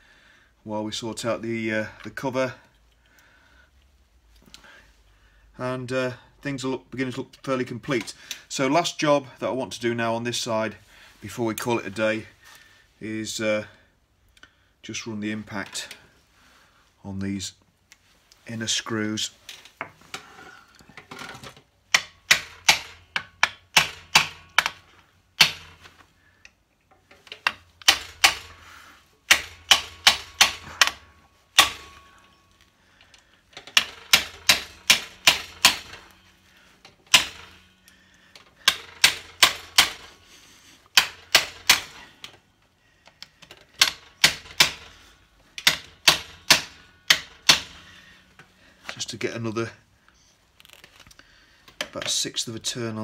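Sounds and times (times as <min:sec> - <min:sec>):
hammer striking impact driver: 0:21.9 - 0:25.9, 0:27.2 - 0:28.7, 0:29.3 - 0:32.4, 0:33.6 - 0:36.3, 0:36.9 - 0:40.2, 0:40.9 - 0:42.4, 0:43.5 - 0:48.0.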